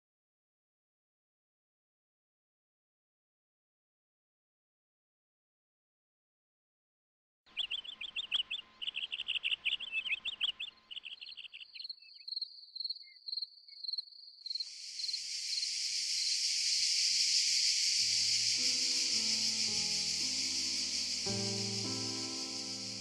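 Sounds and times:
songbirds chirping: 0:07.5 - 0:23.0
cicada buzz: 0:07.6 - 0:23.0
pulsing insect trill: 0:07.8 - 0:23.0
music notes: 0:18.1 - 0:23.0.

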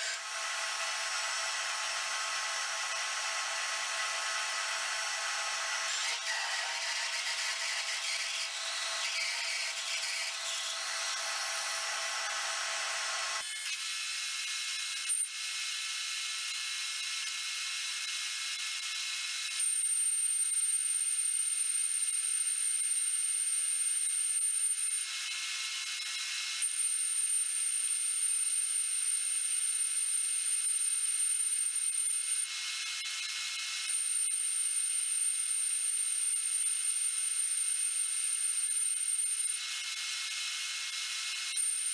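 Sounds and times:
metal lathe running: 0:00.0 - 0:13.5.

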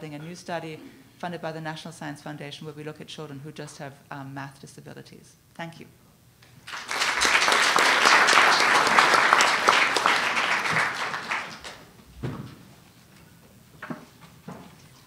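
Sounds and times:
audience applauding: 0:06.6 - 0:11.9.

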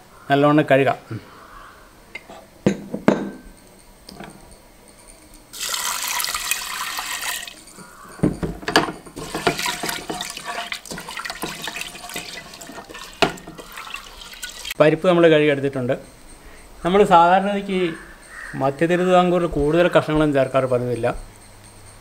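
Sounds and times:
water pouring: 0:05.5 - 0:07.8, 0:09.1 - 0:14.8
small knocks against a pot: 0:05.6 - 0:14.8
lentils swished in water: 0:09.2 - 0:14.8.

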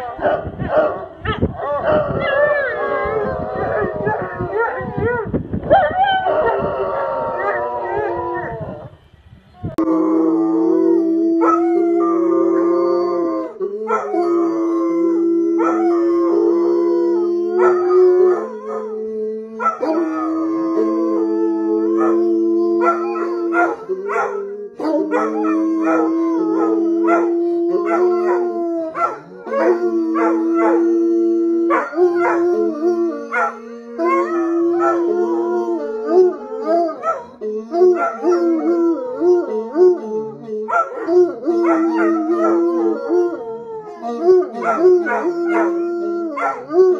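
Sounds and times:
hounds howling: 0:01.6 - 0:08.8, 0:09.8 - 0:46.9.

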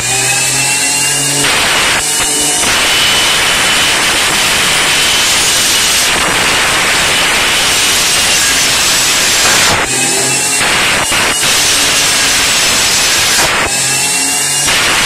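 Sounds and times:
table saw cutting chipboard: 0:00.0 - 0:15.0
thin high whine: 0:00.0 - 0:15.0.

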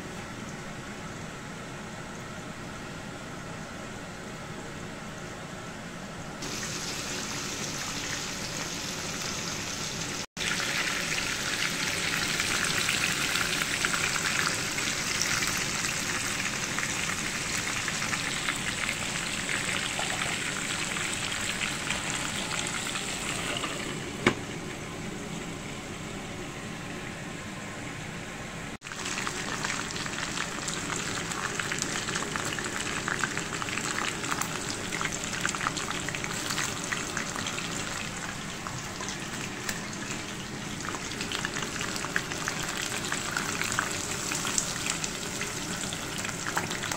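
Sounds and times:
chicken frying in oil: 0:06.4 - 0:24.0, 0:28.8 - 0:46.9.

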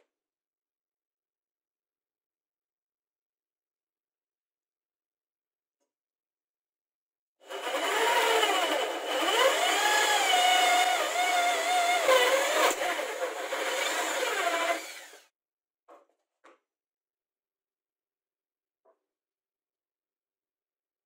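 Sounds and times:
hand drill boring into wood: 0:07.4 - 0:15.3.

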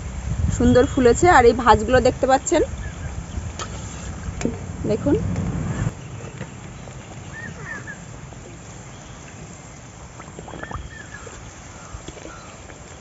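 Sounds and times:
bird chirping: 0:05.7 - 0:08.1, 0:08.7 - 0:12.6.

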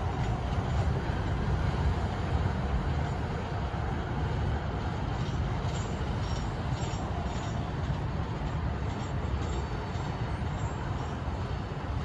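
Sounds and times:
freight train rumbling on track: 0:00.0 - 0:12.0.

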